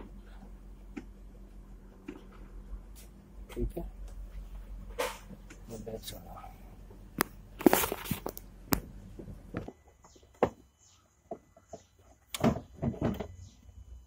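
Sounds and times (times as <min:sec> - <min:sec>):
low background hum: 0:00.0 - 0:14.0
rustling: 0:07.6 - 0:08.5.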